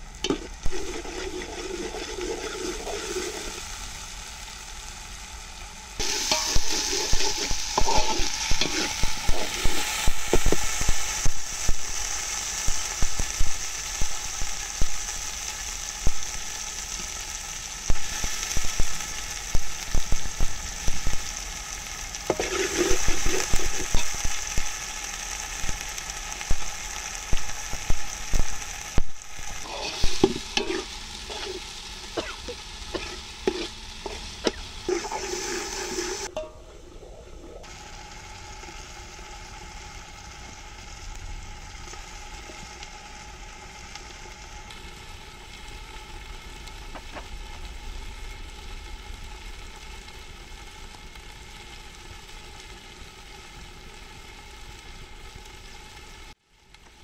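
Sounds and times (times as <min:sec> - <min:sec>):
curry sizzling in oil: 0:00.0 - 0:57.0
skimmer scraping against pot: 0:06.0 - 0:10.5, 0:22.3 - 0:24.1, 0:29.6 - 0:31.7, 0:32.3 - 0:36.3.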